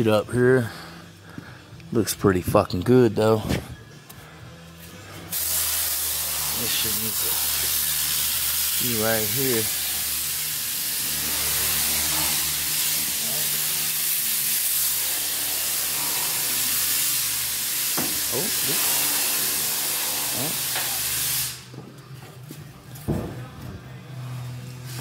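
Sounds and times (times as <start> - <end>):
vehicle lift hissing: 5.1 - 21.7.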